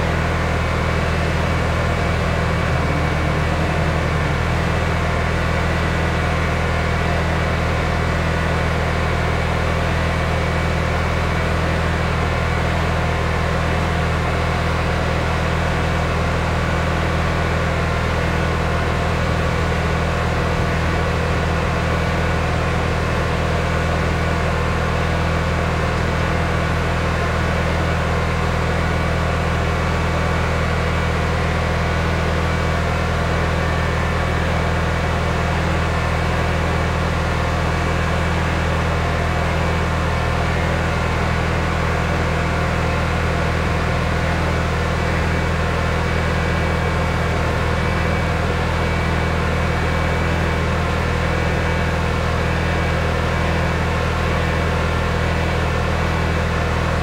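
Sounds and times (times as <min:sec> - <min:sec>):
pressure washer engine droning: 0:00.0 - 0:18.8.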